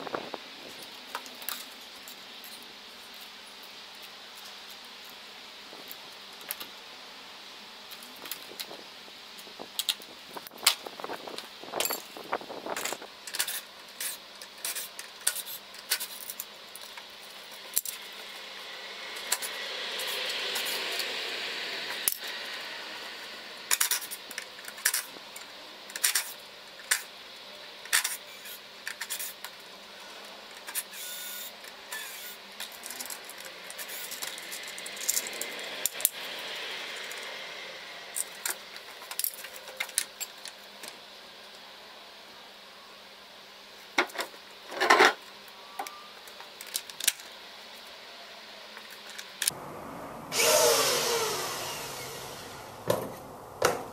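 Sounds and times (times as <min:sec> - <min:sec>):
soft rushing noise: 0:49.5 - 0:53.6.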